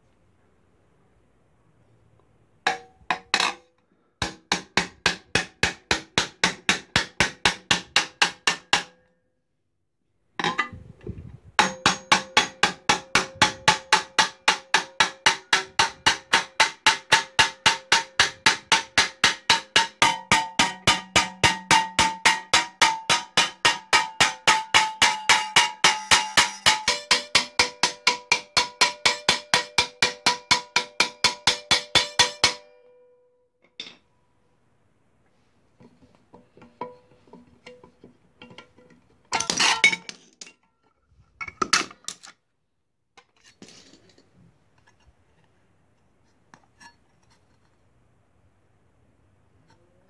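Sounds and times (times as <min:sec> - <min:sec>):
mallet beating metal sheet: 0:11.6 - 0:32.8.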